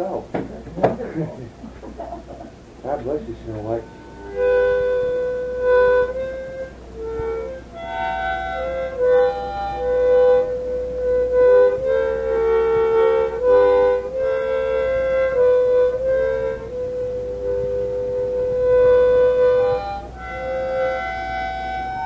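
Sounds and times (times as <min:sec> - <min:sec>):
low steady hum: 0:00.0 - 0:22.0
harmonica playing slow tune: 0:02.6 - 0:22.0.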